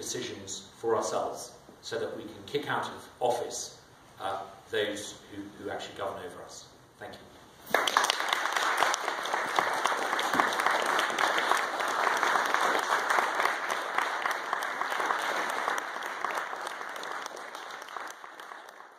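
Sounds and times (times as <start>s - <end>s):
audience applauding: 7.7s - 18.9s.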